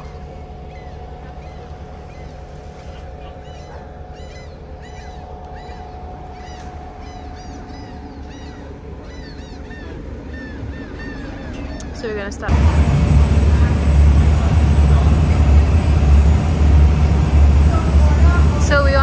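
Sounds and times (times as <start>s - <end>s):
boat engine idling: 0.0s - 19.0s.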